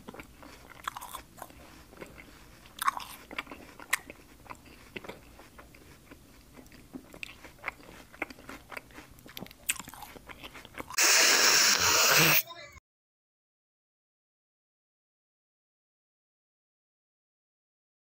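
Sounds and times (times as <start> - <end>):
man chewing food: 0.0 - 12.1.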